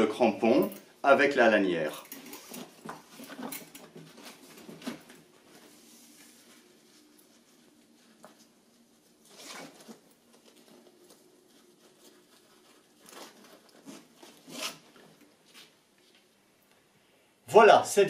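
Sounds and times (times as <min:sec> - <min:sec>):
strap buckle clicks and scrapes: 0:13.1 - 0:15.0.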